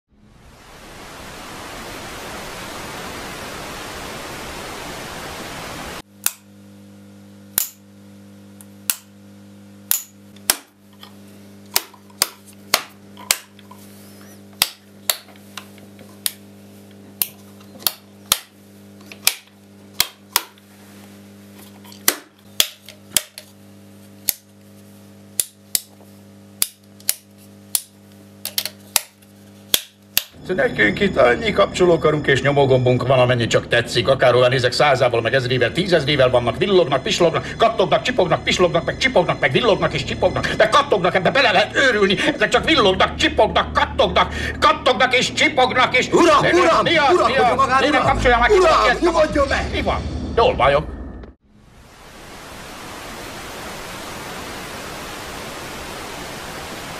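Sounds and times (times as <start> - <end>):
static hiss: 0.1 - 7.4, 51.6 - 56.9
low hum: 0.1 - 14.4, 30.4 - 56.9.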